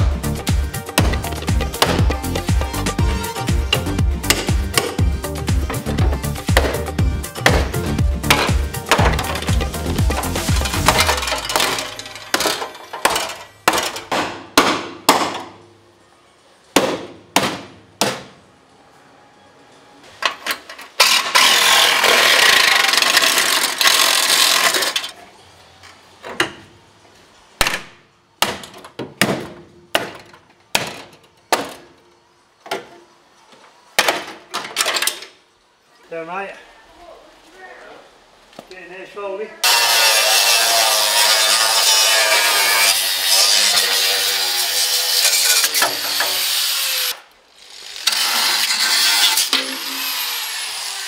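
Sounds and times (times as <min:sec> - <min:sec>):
power tool cutting metal panel: 0:21.0 - 0:25.0, 0:39.6 - 0:51.0.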